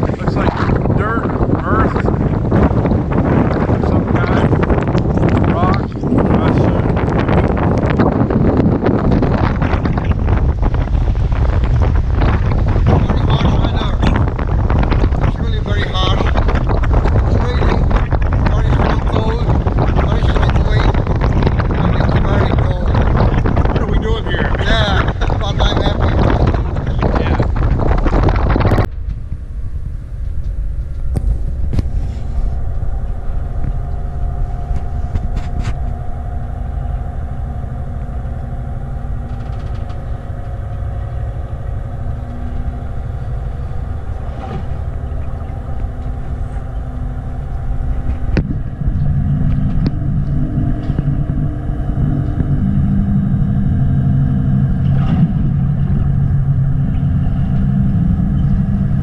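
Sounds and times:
ship machinery rumble and hum: 0:00.0 - 0:59.0.

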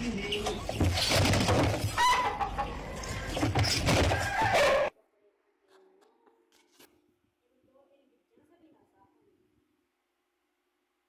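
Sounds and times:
chicken clucking: 0:00.0 - 0:04.9.

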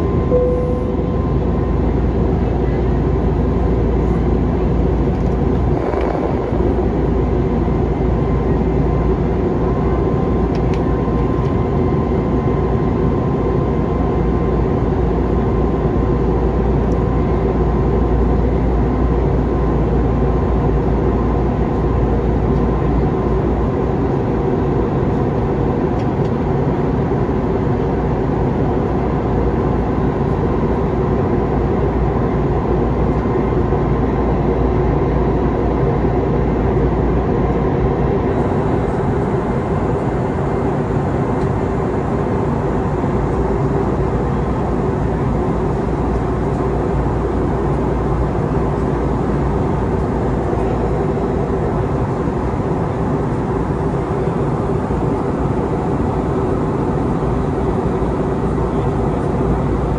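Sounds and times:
faint whine: 0:00.0 - 0:13.4
engine and airflow drone: 0:00.0 - 0:59.9.

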